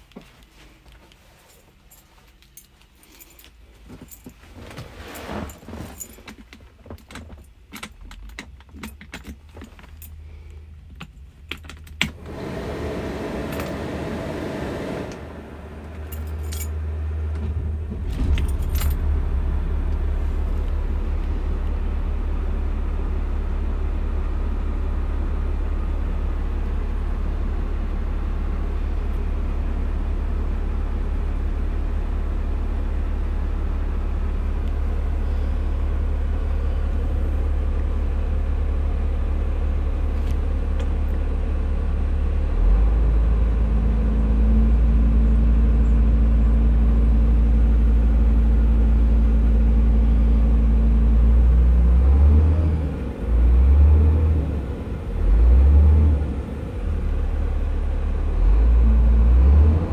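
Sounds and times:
keys jangling: 0:01.5 - 0:04.4, 0:16.0 - 0:16.8
diesel engine cranking and idling: 0:07.1 - 0:59.9.

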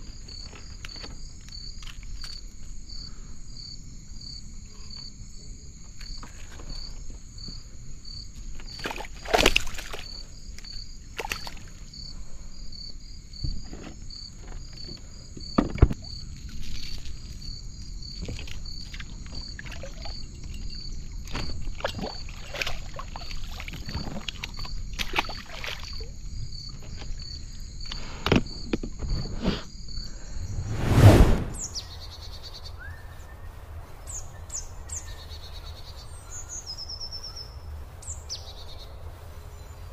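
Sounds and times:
insect chirping: 0:00.0 - 0:30.8.

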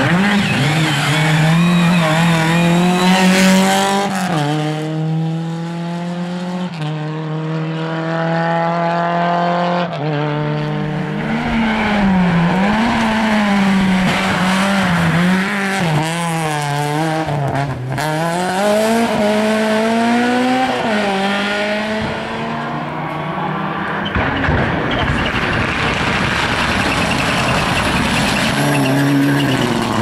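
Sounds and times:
tyre squeal: 0:00.0 - 0:03.8, 0:23.0 - 0:30.0
rally car engines revving: 0:00.0 - 0:30.0.

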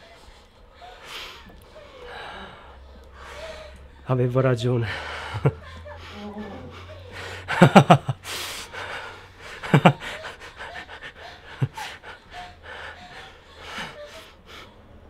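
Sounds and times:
man laughing: 0:04.2 - 0:08.2, 0:08.8 - 0:12.2.

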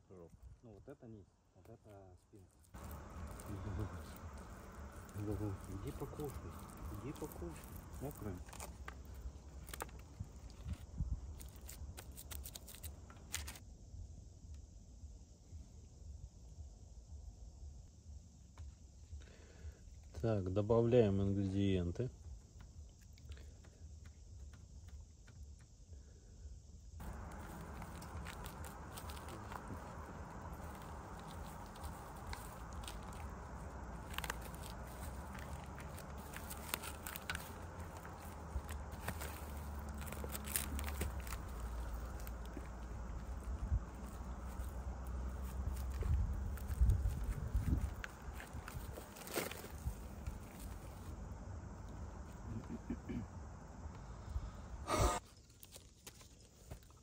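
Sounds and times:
low steady hum: 0:00.0 - 0:57.0
hands crinkling cling film: 0:02.6 - 0:13.6, 0:27.0 - 0:51.2.

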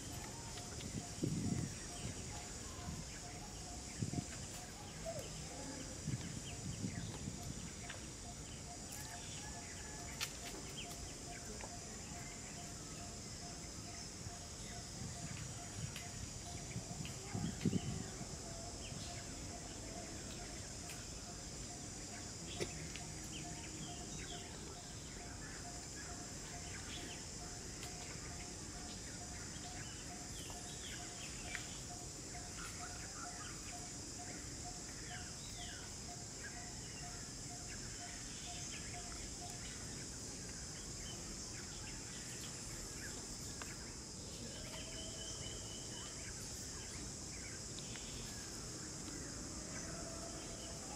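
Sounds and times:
high insect drone: 0:00.0 - 0:50.9.

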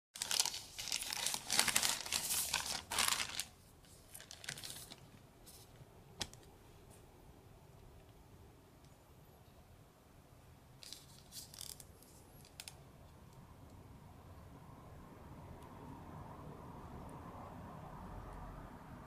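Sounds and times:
packaging crinkling and tearing: 0:00.2 - 0:05.2.

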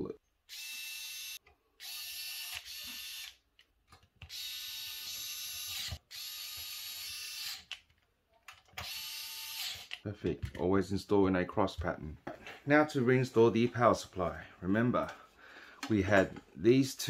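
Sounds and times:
electric screwdriver whirring: 0:00.5 - 0:03.4, 0:04.2 - 0:07.8, 0:08.8 - 0:10.0.

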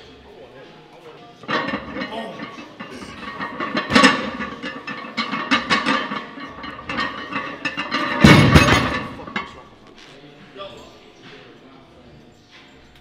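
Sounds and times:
barbell landing with thud and clang: 0:03.3 - 0:09.5.

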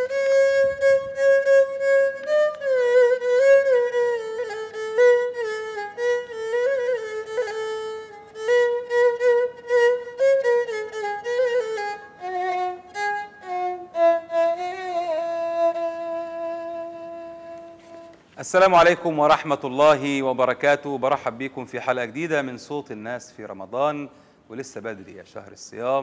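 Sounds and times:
bowed fiddle solo melody: 0:00.0 - 0:19.3.

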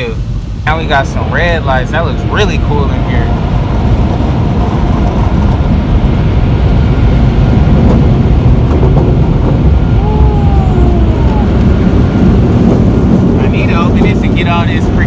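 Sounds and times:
car wash water spray: 0:00.0 - 0:15.0.

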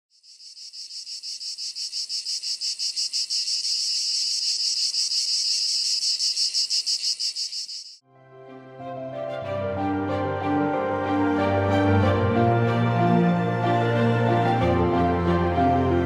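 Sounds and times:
cicadas singing: 0:00.1 - 0:08.0.

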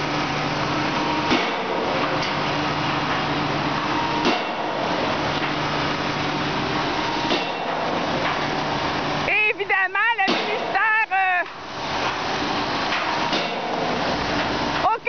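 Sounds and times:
diesel engine running: 0:00.0 - 0:15.0
pile hammer heavy impacts: 0:04.2 - 0:04.9, 0:07.2 - 0:08.4, 0:10.3 - 0:10.8, 0:12.9 - 0:14.0.

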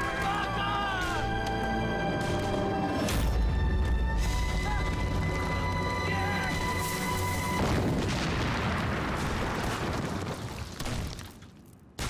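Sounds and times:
background music: 0:00.0 - 0:08.1
big explosion blast with rumble: 0:07.6 - 0:11.1.

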